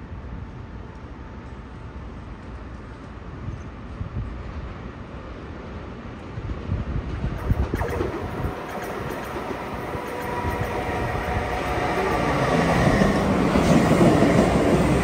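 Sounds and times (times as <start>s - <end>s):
electric train pulling in: 7.4s - 15.0s.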